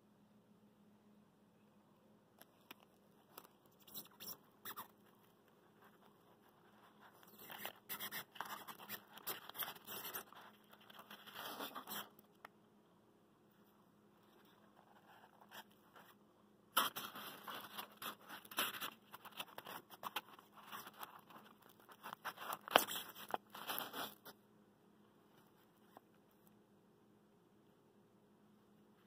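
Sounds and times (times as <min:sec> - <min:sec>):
packaging rustling and crunching: 0:16.8 - 0:24.3.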